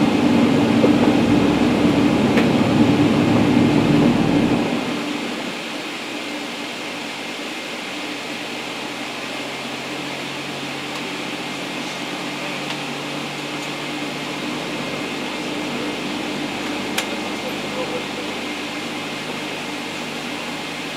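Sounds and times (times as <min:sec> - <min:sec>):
constant low hum: 0:00.0 - 0:05.6
airy rush in aircraft cabin: 0:00.0 - 0:05.8.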